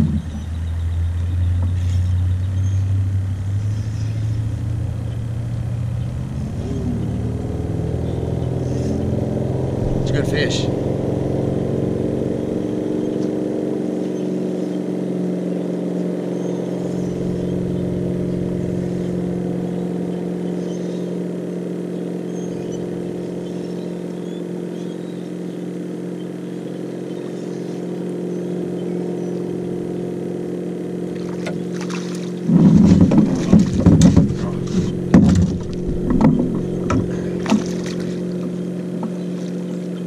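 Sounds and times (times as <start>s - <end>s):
outboard motor idling: 0.0s - 40.0s
fish splashing and knocking: 31.2s - 39.6s.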